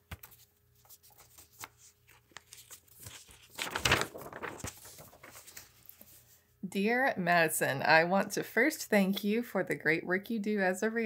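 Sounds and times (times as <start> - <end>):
paper rustling and crinkling: 0.1 - 6.4.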